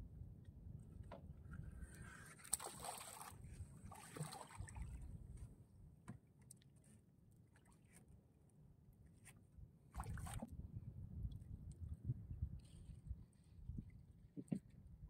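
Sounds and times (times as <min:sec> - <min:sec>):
water lapping against hull: 0:01.4 - 0:08.2, 0:09.9 - 0:10.6, 0:11.3 - 0:15.0.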